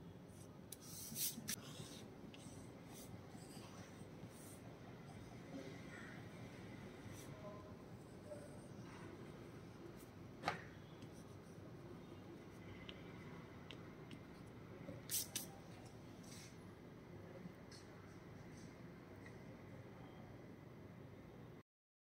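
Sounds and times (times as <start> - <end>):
pencil on paper: 0.4 - 4.6.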